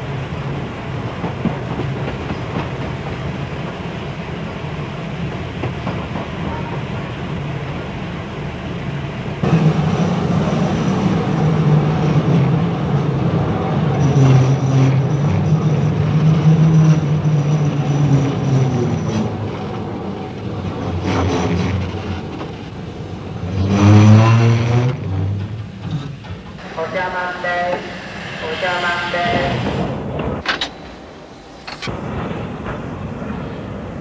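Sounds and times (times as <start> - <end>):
steam train rumbling: 0.0 - 34.0.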